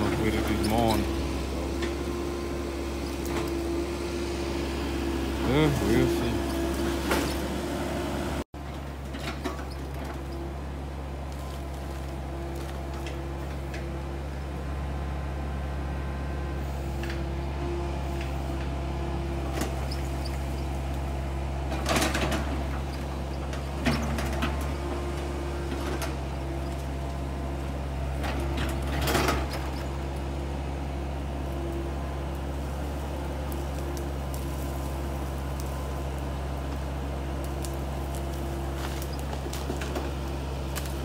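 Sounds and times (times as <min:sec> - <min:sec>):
excavator engine running: 0:00.0 - 0:41.0
trees cracking and crunching: 0:05.3 - 0:07.6, 0:08.8 - 0:14.4, 0:18.0 - 0:41.0.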